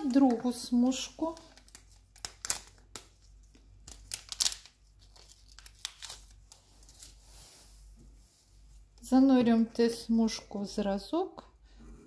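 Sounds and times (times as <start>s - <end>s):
wrapper tearing and crinkling: 1.4s - 7.1s.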